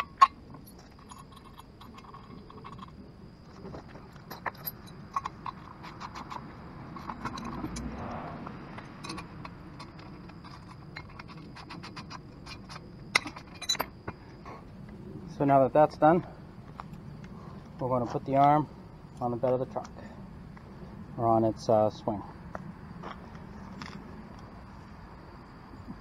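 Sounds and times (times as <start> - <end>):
metal parts clinking: 0.0 - 8.1, 8.7 - 14.2.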